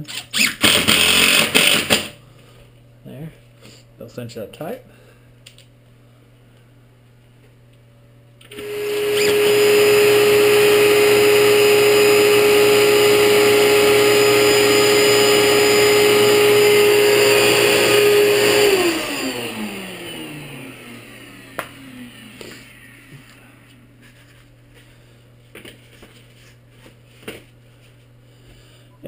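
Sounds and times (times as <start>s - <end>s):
shop vacuum motor whine: 0.6s - 2.1s, 8.4s - 23.8s.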